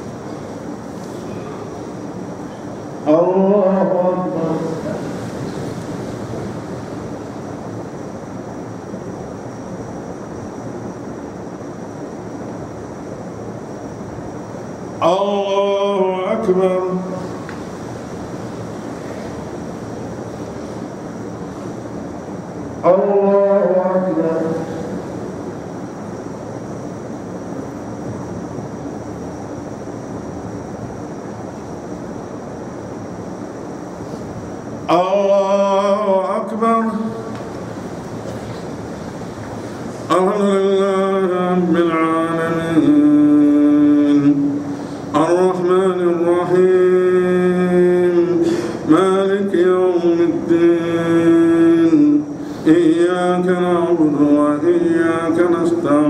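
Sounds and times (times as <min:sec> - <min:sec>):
faint high-pitched whine: 0:00.0 - 0:56.0
steady hiss: 0:00.0 - 0:56.0
crowd rustling: 0:04.6 - 0:07.5, 0:37.3 - 0:40.3.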